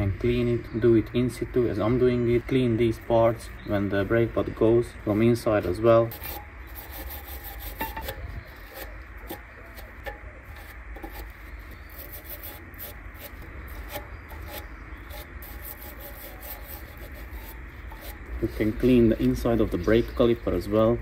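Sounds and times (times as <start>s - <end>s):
wire brush scrubbing metal: 5.4s - 20.4s.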